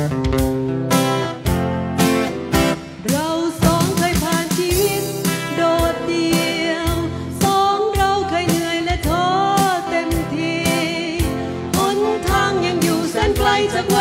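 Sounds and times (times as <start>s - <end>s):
steady beat: 0.0s - 5.5s
strummed acoustic guitar: 0.0s - 7.5s.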